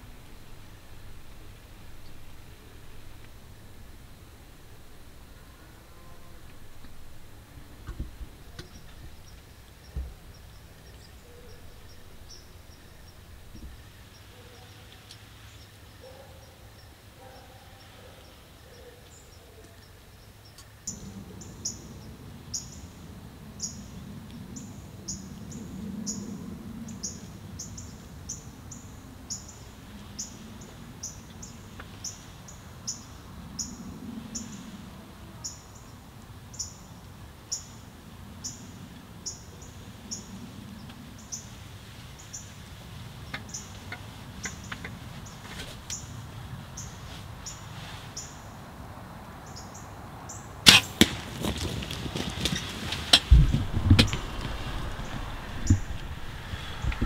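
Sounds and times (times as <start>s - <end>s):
low background rumble: 0.0s - 14.8s, 51.1s - 57.0s.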